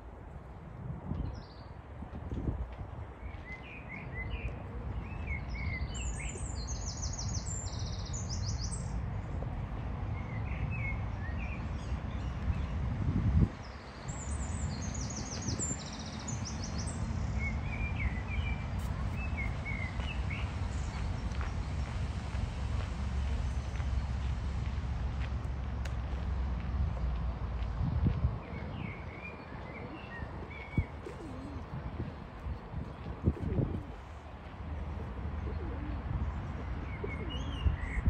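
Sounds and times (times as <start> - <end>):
songbirds trilling and chirping: 3.1 - 25.3, 27.0 - 38.0
steady low rumble: 17.0 - 38.0.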